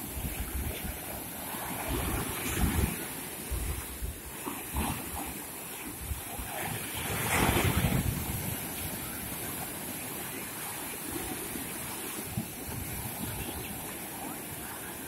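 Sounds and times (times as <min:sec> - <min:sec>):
waves breaking on shore: 0:00.0 - 0:15.0
wind buffeting microphone: 0:06.0 - 0:09.6.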